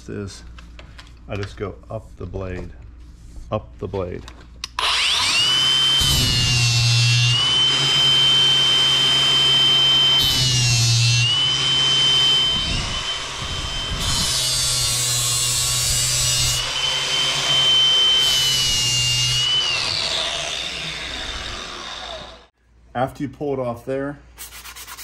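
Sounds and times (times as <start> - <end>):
angle grinder whining: 4.7 - 22.6.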